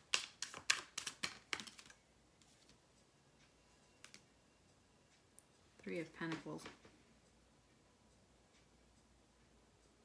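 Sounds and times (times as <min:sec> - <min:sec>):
cards shuffling and clicking: 0:00.0 - 0:02.8.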